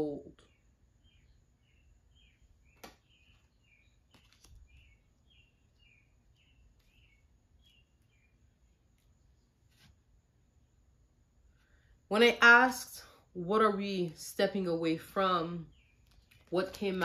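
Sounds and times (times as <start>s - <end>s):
faint bird chirps: 0.0s - 10.0s, 15.0s - 17.0s.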